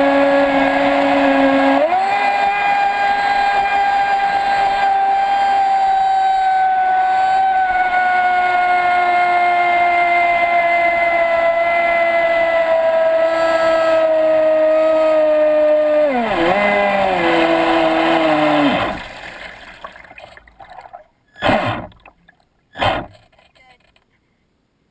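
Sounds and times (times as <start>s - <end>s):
electric motor whining: 0.0s - 19.5s
faint water sloshing: 17.1s - 23.6s.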